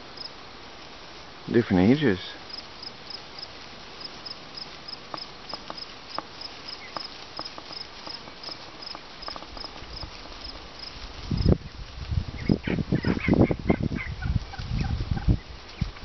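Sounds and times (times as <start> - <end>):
crickets chirping: 0.0 - 0.4, 1.9 - 11.6
wild turkeys calling softly: 1.5 - 11.1.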